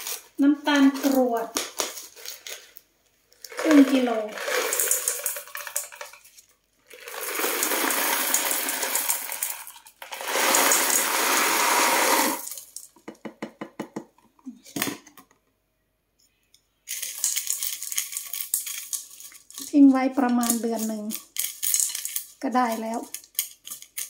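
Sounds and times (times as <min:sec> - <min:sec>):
sugar crystals rattling into jar: 0:00.0 - 0:02.7, 0:03.4 - 0:13.0, 0:16.9 - 0:24.0
knock: 0:13.0 - 0:14.1.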